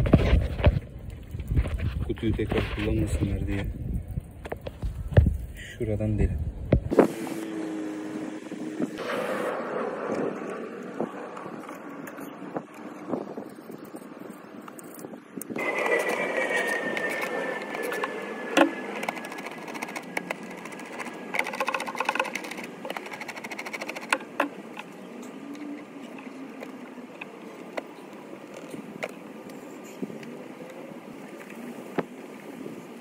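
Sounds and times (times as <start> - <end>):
plastic and metal parts clicking: 18.6 - 24.9
quick ticks: 19.0 - 24.4.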